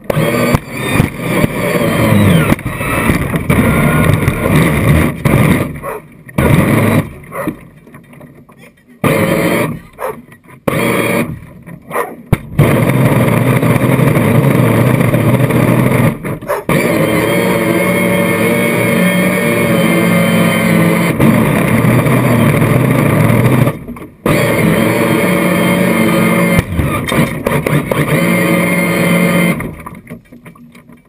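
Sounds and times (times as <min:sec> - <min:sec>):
model boat motor running: 0:00.0 - 0:05.8, 0:09.0 - 0:10.1, 0:10.7 - 0:11.6, 0:12.6 - 0:30.8.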